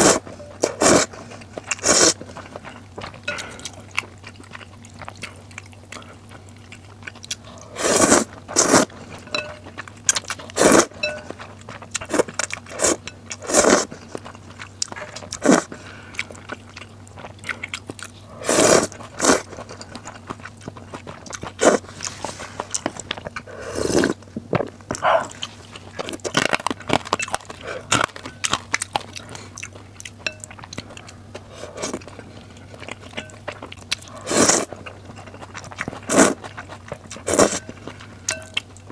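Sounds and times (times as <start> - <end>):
loud noodle slurps: 0.0 - 1.1, 1.8 - 2.2, 7.7 - 8.9, 10.6 - 10.9, 12.8 - 13.9, 18.4 - 19.4, 23.6 - 24.2, 34.2 - 34.7, 36.1 - 36.4
wet chewing: 0.0 - 38.9.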